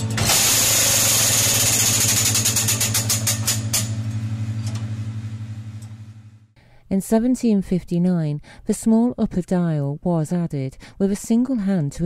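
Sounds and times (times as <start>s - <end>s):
clock mechanism whirring and clicking: 0.0s - 4.0s
low hum: 3.6s - 6.5s.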